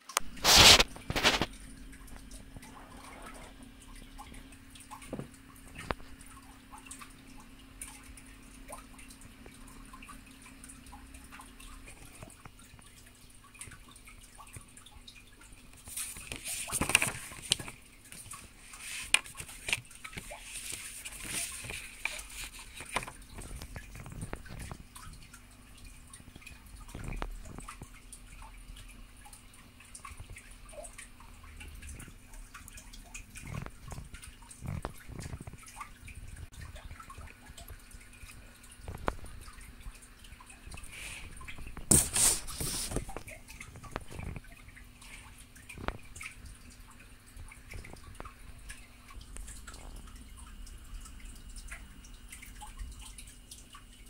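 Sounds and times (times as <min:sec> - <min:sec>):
faint steady hum: 0:00.0 - 0:54.0
page rustling: 0:00.2 - 0:01.6, 0:15.8 - 0:24.8, 0:41.8 - 0:43.2
paper booklet rustling: 0:00.2 - 0:01.6, 0:15.8 - 0:24.8, 0:41.8 - 0:43.2.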